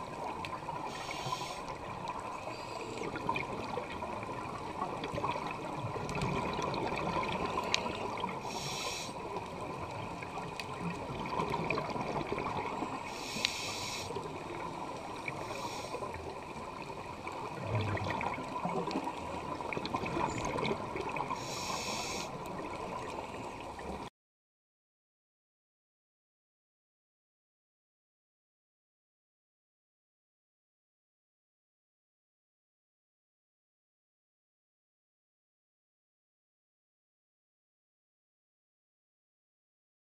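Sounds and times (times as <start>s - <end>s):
scuba exhaust bubbles: 0.0s - 24.0s
underwater hiss and rumble: 0.0s - 24.1s.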